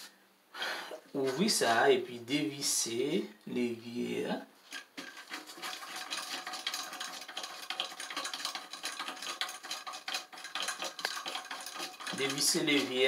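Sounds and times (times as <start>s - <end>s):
plastic nut clicking and rattling: 4.7s - 12.9s.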